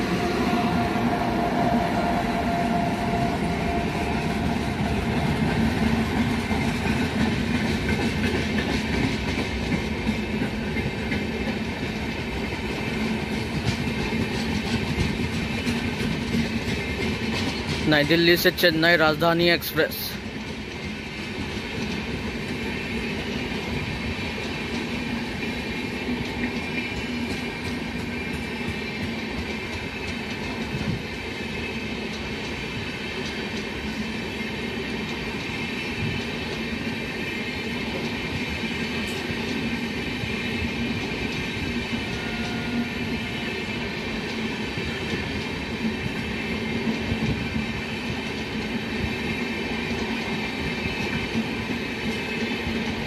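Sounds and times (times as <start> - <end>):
train wheels rumbling on rails: 0.0 - 53.0
clacks over rail joints: 4.3 - 34.1.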